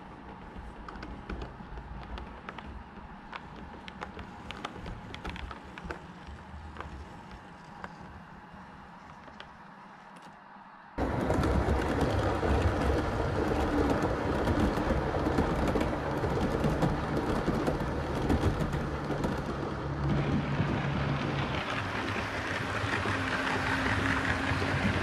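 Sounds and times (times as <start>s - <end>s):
model train wheels rattling: 11.0s - 25.0s.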